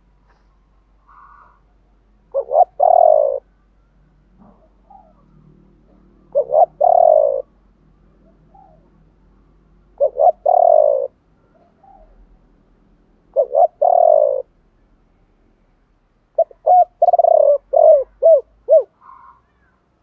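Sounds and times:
dove cooing: 0:01.1 - 0:01.7, 0:02.3 - 0:03.6, 0:04.4 - 0:07.6, 0:08.2 - 0:09.2, 0:09.8 - 0:12.4, 0:13.3 - 0:14.5, 0:16.3 - 0:19.7.

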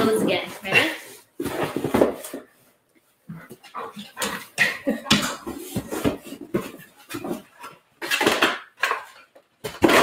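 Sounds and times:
objects clattering in cardboard box: 0:00.1 - 0:02.5, 0:05.1 - 0:10.0.

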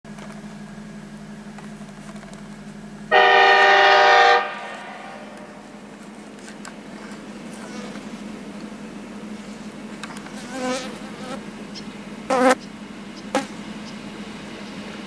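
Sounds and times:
locomotive horn chord: 0:03.1 - 0:05.9.

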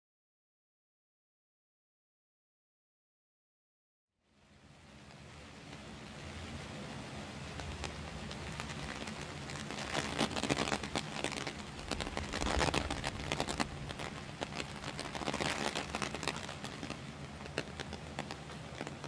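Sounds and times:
heavy rain falling: 0:04.4 - 0:19.0.

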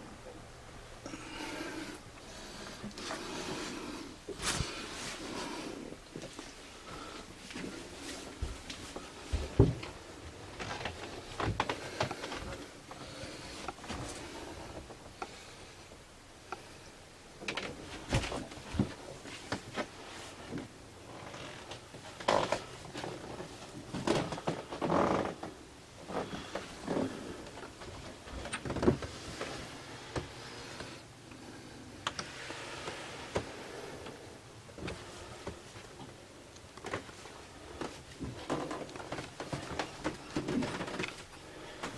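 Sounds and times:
footsteps: 0:06.1 - 0:12.6.

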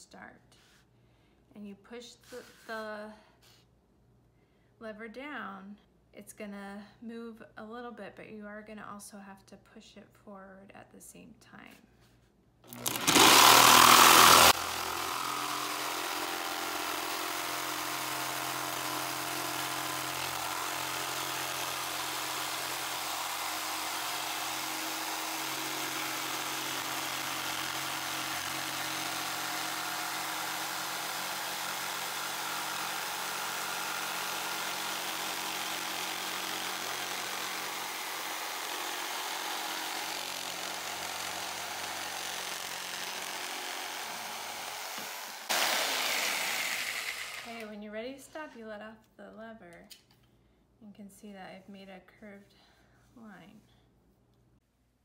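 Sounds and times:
jigsaw cutting plywood: 0:12.7 - 0:47.7.

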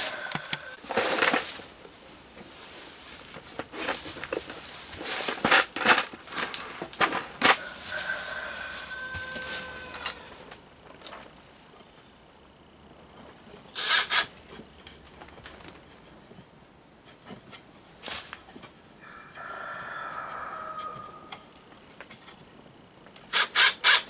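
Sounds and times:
cordless drill driving a screw: 0:13.8 - 0:14.3, 0:23.3 - 0:24.0.

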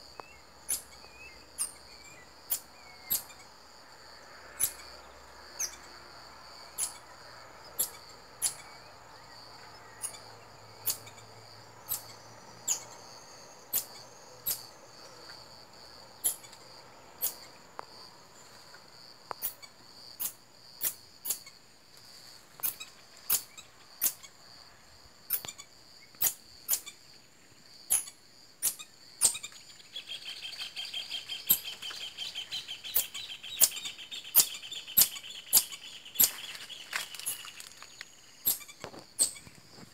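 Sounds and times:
high insect drone: 0:00.0 - 0:39.9
marmoset calling: 0:00.2 - 0:03.4, 0:04.6 - 0:04.8, 0:05.6 - 0:05.9, 0:06.8 - 0:07.0, 0:07.8 - 0:08.8, 0:10.0 - 0:11.3, 0:11.9 - 0:13.0, 0:16.2 - 0:16.6, 0:22.6 - 0:24.3, 0:27.9 - 0:37.4, 0:38.4 - 0:39.5.

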